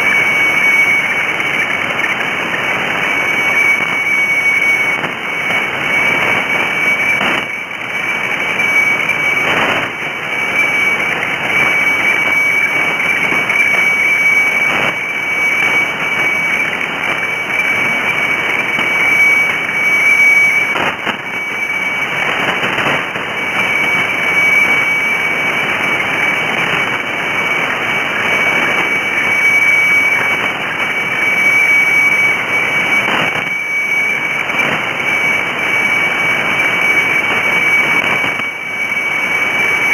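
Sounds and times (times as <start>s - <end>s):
radio static hiss and crackling: 0.0s - 39.9s
steady high radio tone: 0.0s - 39.9s.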